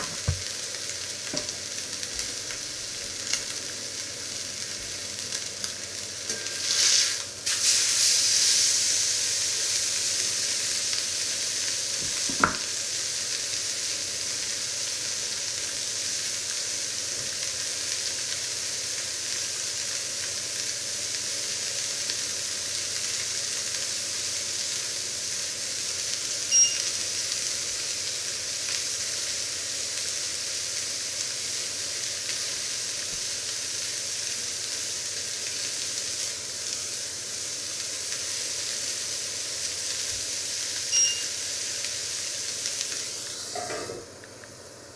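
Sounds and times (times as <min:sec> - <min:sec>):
meat sizzling in a pan: 0:00.0 - 0:44.9
short high beep: 0:26.5 - 0:26.9, 0:40.9 - 0:41.3.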